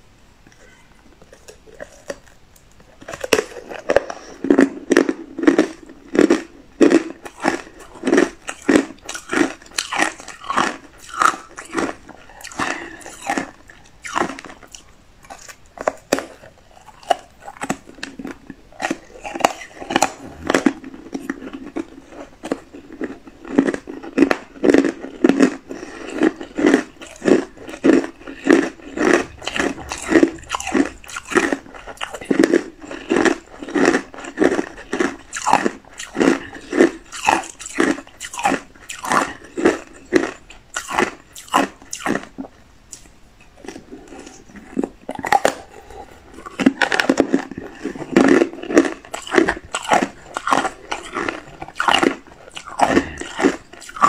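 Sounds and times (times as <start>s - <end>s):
ice crunching while chewed: 0.5s - 54.0s.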